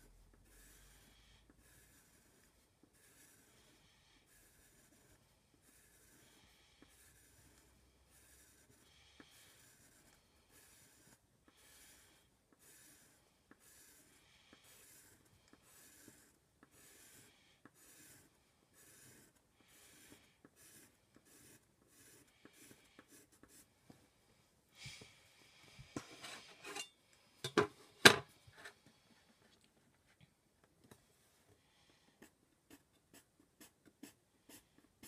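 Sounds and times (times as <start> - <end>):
pencil scratching on paper: 0.0 - 23.8, 32.2 - 35.0.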